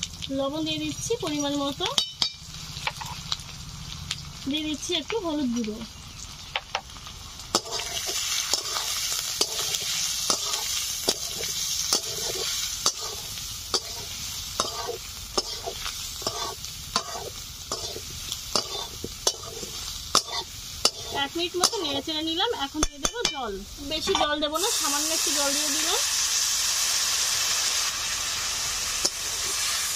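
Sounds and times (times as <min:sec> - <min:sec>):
onions and potatoes sizzling in oil: 0:00.0 - 0:29.9
spatula scraping and knocking a pan: 0:07.6 - 0:21.8.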